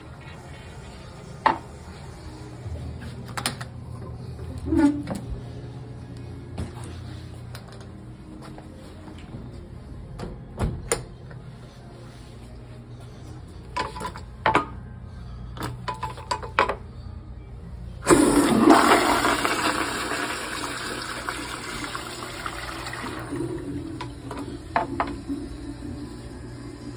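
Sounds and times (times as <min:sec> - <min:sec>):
toilet flushing whoosh: 0:18.0 - 0:26.9.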